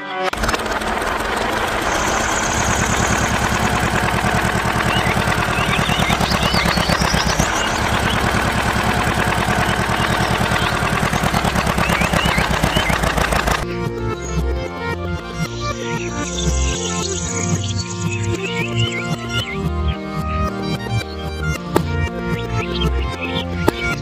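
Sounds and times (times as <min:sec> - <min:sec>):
tractor engine chugging: 0:00.3 - 0:13.7
high chirps: 0:00.9 - 0:13.6, 0:15.8 - 0:19.6.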